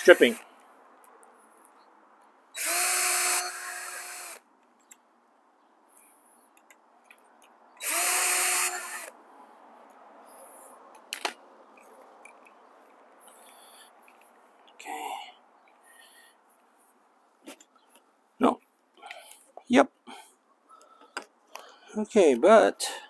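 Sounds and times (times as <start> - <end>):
cordless drill motor whine: 2.6 - 4.4, 7.8 - 9.2.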